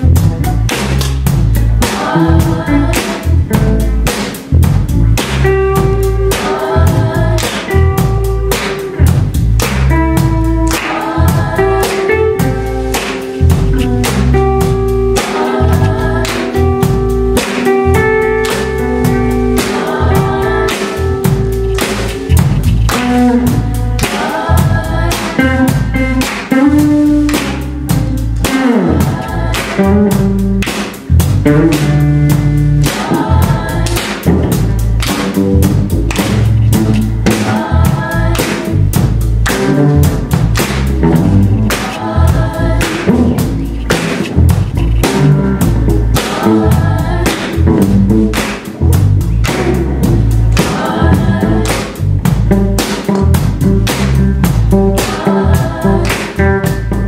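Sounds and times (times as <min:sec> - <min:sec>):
bass guitar: 0:00.0 - 0:57.0
drum kit beat: 0:00.0 - 0:57.0
electric guitars: 0:00.0 - 0:57.0
women singing together: 0:01.7 - 0:03.5, 0:06.1 - 0:07.9, 0:10.7 - 0:12.9, 0:15.0 - 0:21.5, 0:23.9 - 0:25.9, 0:28.5 - 0:30.3, 0:32.8 - 0:34.4, 0:37.2 - 0:38.8, 0:41.7 - 0:43.5, 0:46.1 - 0:47.7, 0:50.5 - 0:52.1, 0:54.8 - 0:56.5.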